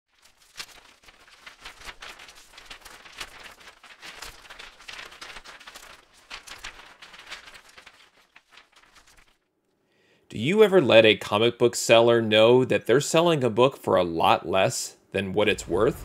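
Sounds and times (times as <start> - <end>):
packaging rustling and crinkling: 0.1 - 9.5.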